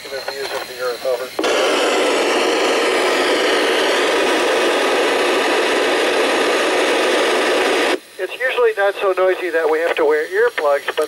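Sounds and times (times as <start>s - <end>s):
radio static hiss: 0.0s - 11.0s.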